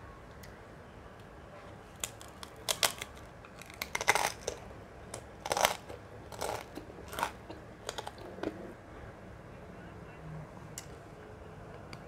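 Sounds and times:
cracker crunching: 1.9s - 8.6s.

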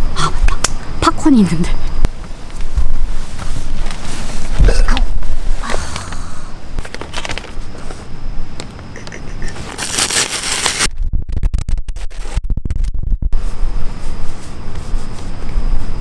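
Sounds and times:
paper bag crinkling and tearing: 6.8s - 7.9s, 9.6s - 10.9s.

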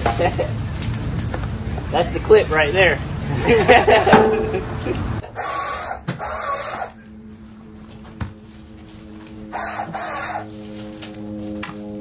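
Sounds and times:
brush rustling and scraping: 6.9s - 12.0s.

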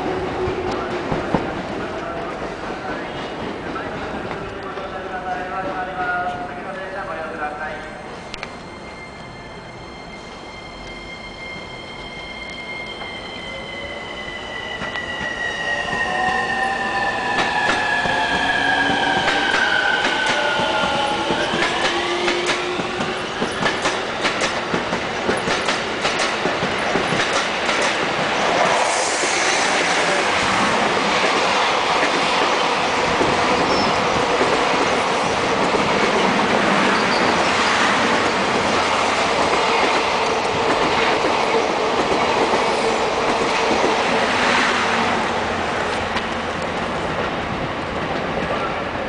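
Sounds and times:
train wheels clacking over rail joints: 19.1s - 28.1s.

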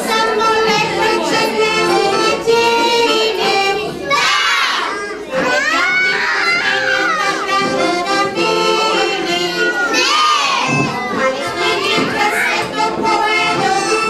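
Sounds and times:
accordion: 0.0s - 14.0s
small children singing: 0.0s - 14.0s
children shouting: 3.7s - 8.4s, 9.0s - 14.0s.

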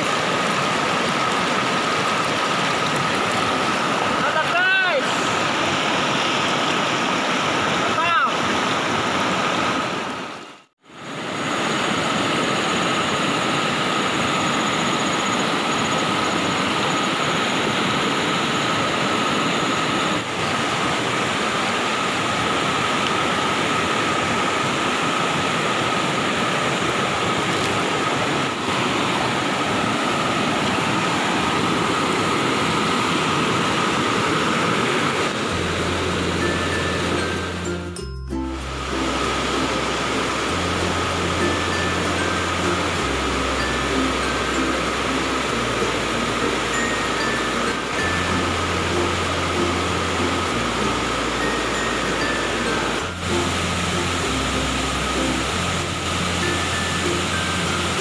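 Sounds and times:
river rapids roaring: 0.0s - 58.0s
thin steady tone: 35.5s - 58.0s.

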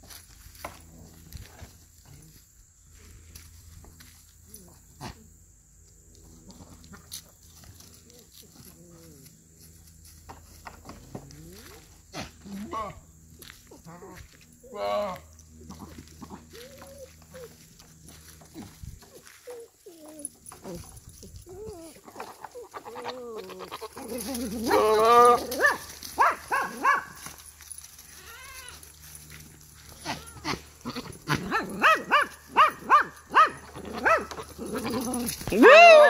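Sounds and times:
goat bleating: 22.2s - 25.6s, 29.9s - 31.8s.

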